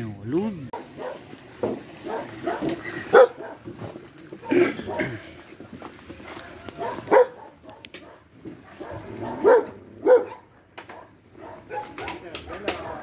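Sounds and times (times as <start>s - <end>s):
dog barking: 0.7s - 1.3s, 2.0s - 3.6s, 4.4s - 5.2s, 6.3s - 13.0s.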